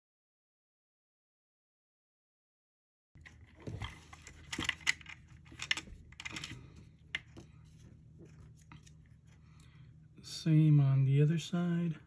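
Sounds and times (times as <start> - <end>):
small plastic parts clicking: 3.2 - 7.4.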